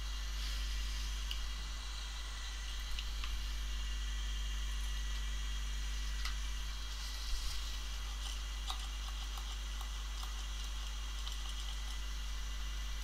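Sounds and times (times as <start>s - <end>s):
electrical hum and hiss: 0.0s - 13.0s.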